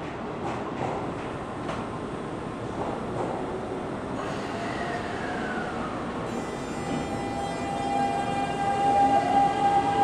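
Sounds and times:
electric train motors whining: 4.2s - 10.0s.

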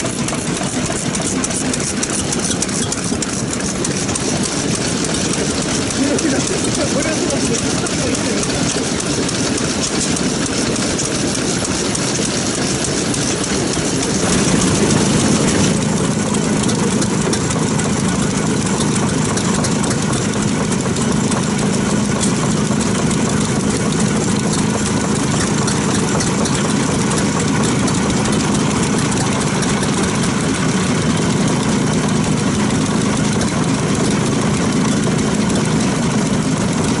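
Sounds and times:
diesel engine running: 0.0s - 37.0s.

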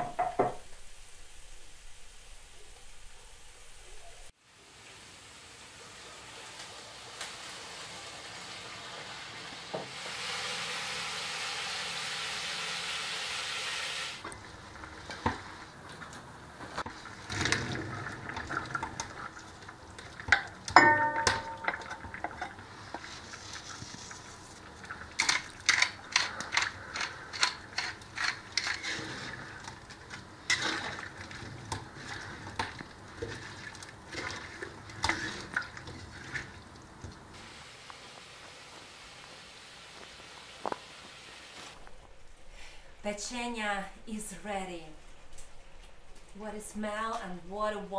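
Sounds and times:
ringing metal clank: 20.8s - 22.1s
clinks: 20.8s - 22.3s
wooden spatula scraping pot: 21.4s - 36.5s.

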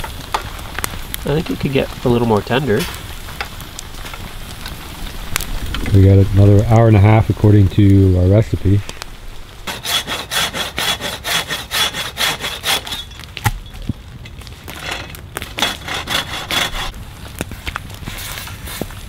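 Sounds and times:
hand saw cutting branch: 9.7s - 13.0s, 14.7s - 16.9s.

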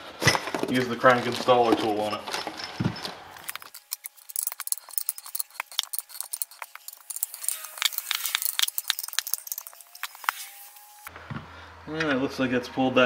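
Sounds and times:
wrench clicking on metal: 3.4s - 10.4s.

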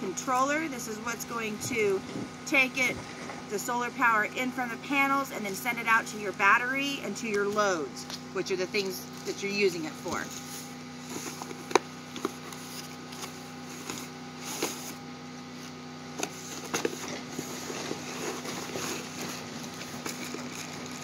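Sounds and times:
faint steady hum: 0.0s - 21.0s
cardboard rustling: 10.1s - 15.0s, 15.6s - 21.0s.

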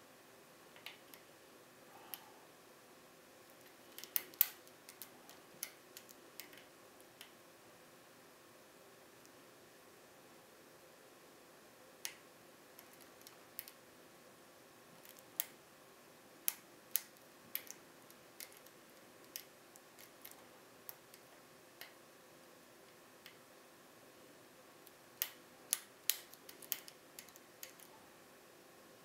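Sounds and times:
lock pick metallic clicks: 3.6s - 6.6s, 18.4s - 22.0s, 25.2s - 27.9s.

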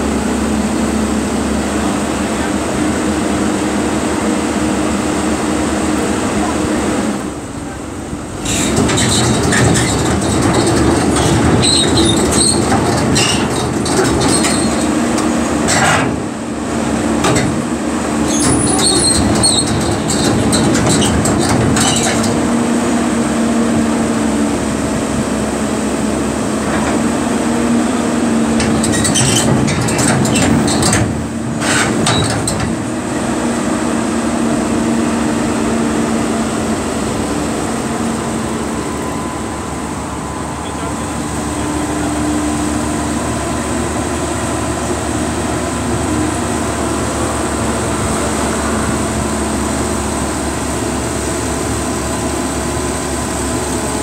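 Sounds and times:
diesel engine running under load: 0.0s - 54.0s
metal clanks and rattles: 8.4s - 16.3s, 17.2s - 17.7s, 18.3s - 22.5s, 28.6s - 32.9s.

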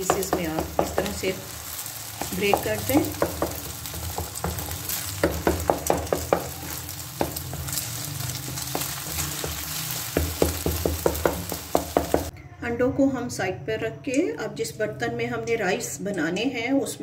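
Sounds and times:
eggs sizzling in oil: 0.0s - 12.3s
spatula tapping pan: 0.0s - 12.3s.

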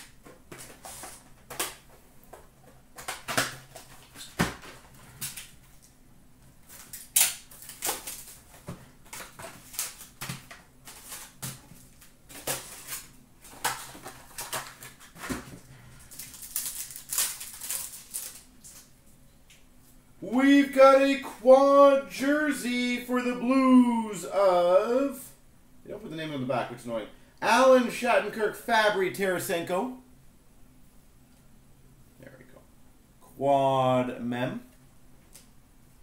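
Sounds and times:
foil wrapper crinkling: 6.6s - 18.9s.

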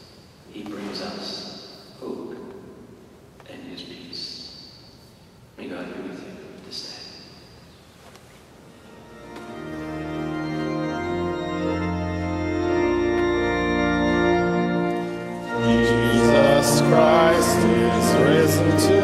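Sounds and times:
organ playing sustained chords: 8.7s - 19.0s.

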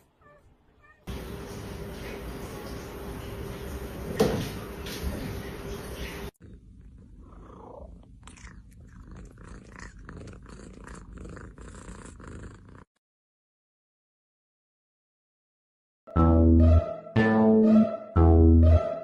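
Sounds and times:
cat purring: 6.4s - 12.9s.

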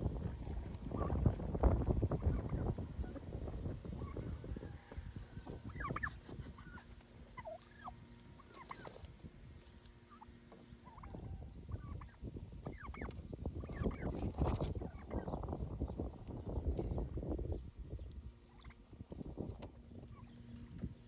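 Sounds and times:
wind buffeting microphone: 0.0s - 6.6s, 11.0s - 21.0s
turkeys and poultry calling: 0.2s - 17.3s, 18.2s - 21.0s.

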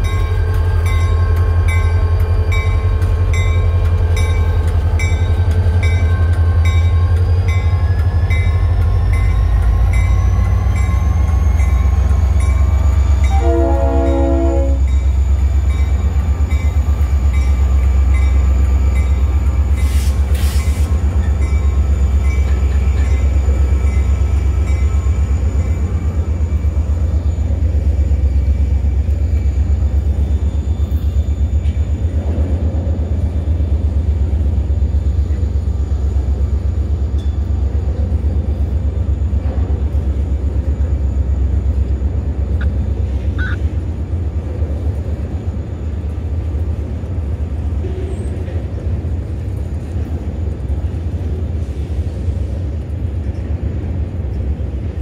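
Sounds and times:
freight train rumbling past: 0.0s - 55.0s.

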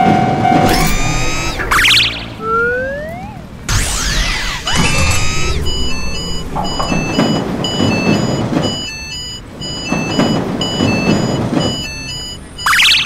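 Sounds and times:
low rumbling: 0.0s - 12.6s
falling whistle sound effect: 0.7s - 6.8s
railroad crossing bell dinging: 4.8s - 13.0s.

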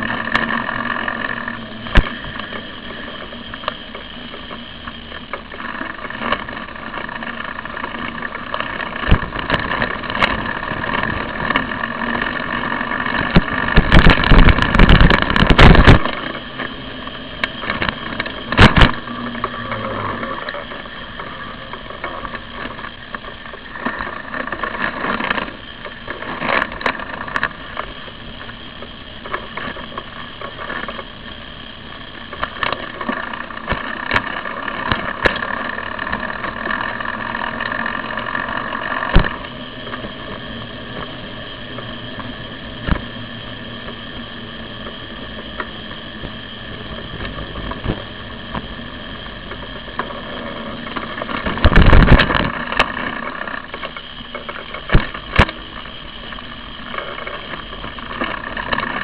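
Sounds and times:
bicycle riding hum: 0.0s - 59.0s
bicycle knocks and jolts: 5.6s - 19.6s.

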